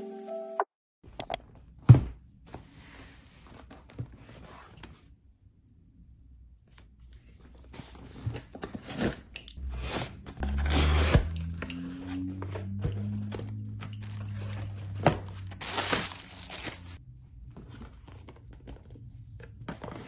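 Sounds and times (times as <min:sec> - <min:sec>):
box cutter cutting cardboard and tape: 0:08.8 - 0:12.2
cardboard box rubbing and scraping: 0:09.6 - 0:11.5.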